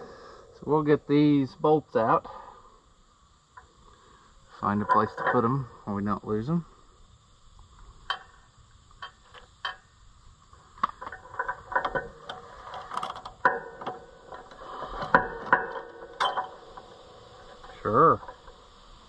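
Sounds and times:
metal parts clinking and rattling: 10.8s - 18.6s.

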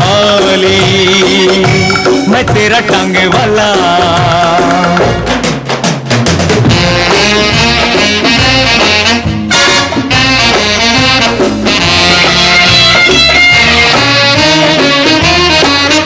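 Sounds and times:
band music led by brass: 0.0s - 16.0s.

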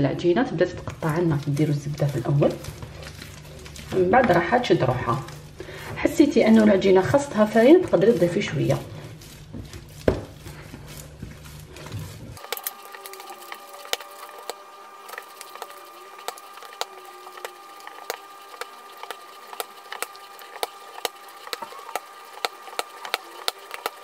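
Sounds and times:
dough being kneaded by hand: 0.0s - 24.0s
dough slaps and squelches: 0.0s - 24.0s.

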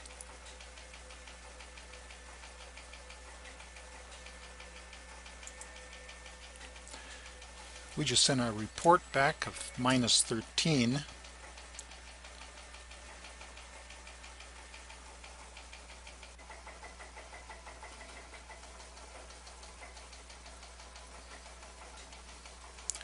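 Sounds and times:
low steady hum: 0.0s - 16.6s
faint ticking: 0.0s - 23.0s.

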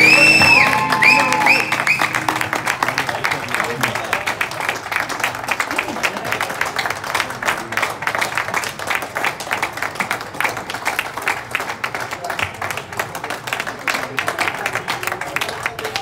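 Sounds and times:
voices talking: 0.0s - 4.3s
audience applauding: 0.0s - 16.0s.

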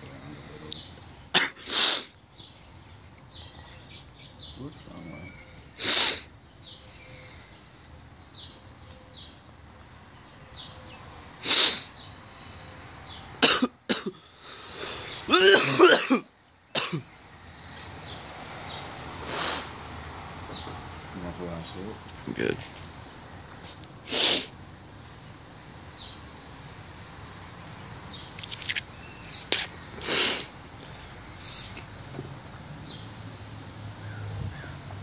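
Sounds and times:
man coughing: 1.3s - 1.6s, 13.4s - 14.2s, 15.3s - 17.1s
breath blowing out: 1.4s - 2.2s, 5.8s - 6.3s, 11.4s - 11.9s, 19.2s - 19.8s, 24.0s - 24.5s, 28.4s - 31.8s.

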